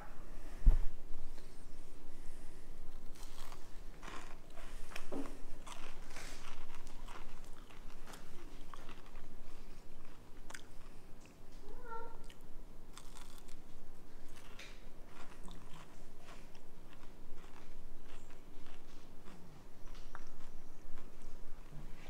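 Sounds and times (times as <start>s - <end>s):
person chewing crunchy food: 2.9s - 11.4s, 12.2s - 21.2s.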